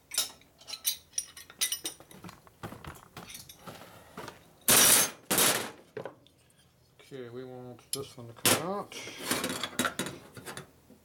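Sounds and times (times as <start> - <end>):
metal tools clinking: 0.1 - 2.1, 3.2 - 3.6.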